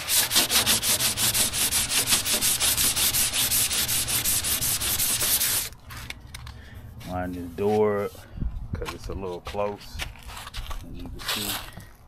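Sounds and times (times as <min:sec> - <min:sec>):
sandpaper rubbing on metal panel: 0:00.0 - 0:05.7.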